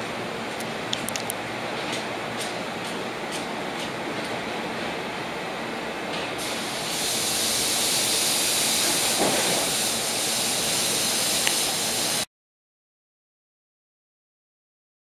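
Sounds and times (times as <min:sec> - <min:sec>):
electric train hissing: 0:06.4 - 0:12.3.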